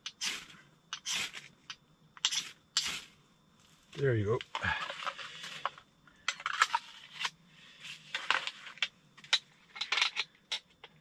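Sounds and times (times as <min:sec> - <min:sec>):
kindling fire crackling: 0:00.0 - 0:05.7.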